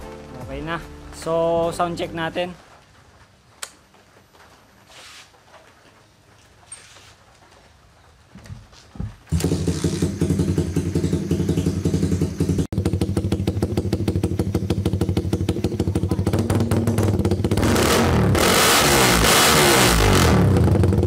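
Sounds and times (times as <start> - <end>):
motorcycle engine revving: 9.3 - 21.0.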